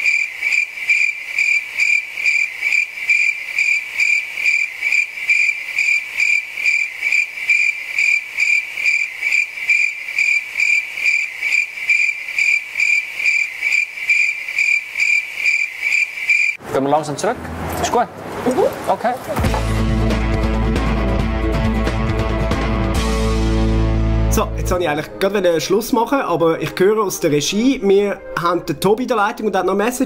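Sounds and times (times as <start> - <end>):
cricket chirping: 0.0 - 16.6.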